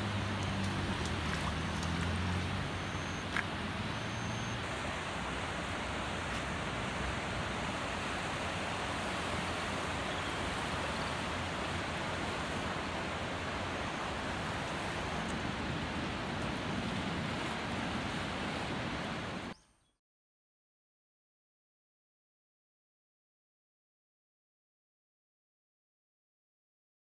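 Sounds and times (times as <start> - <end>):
river water rushing: 0.0 - 19.5.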